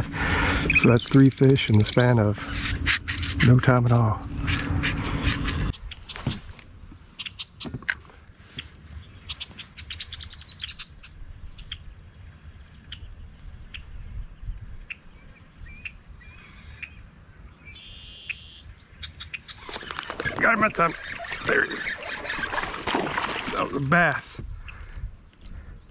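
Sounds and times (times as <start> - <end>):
low background rumble: 0.0 - 7.2
birds chirping: 0.0 - 7.8, 12.8 - 25.9.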